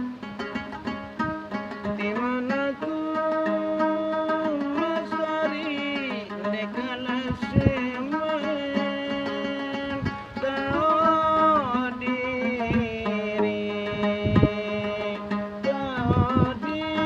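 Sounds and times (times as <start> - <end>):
man singing folk style: 0.0 - 17.0
plucked lute: 0.0 - 17.0.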